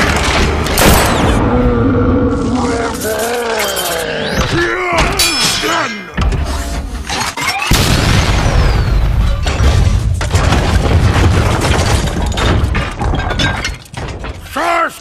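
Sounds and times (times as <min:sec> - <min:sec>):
rumble of shattering debris: 0:07.7 - 0:14.6.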